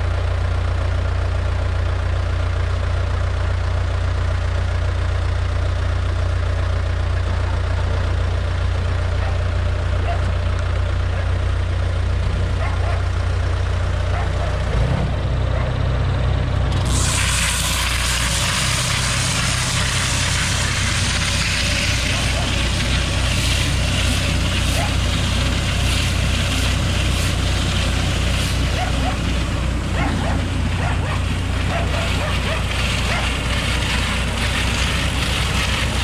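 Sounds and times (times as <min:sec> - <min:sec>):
tractor diesel engine running: 0:00.0 - 0:36.0
loud steady hiss: 0:16.7 - 0:36.0.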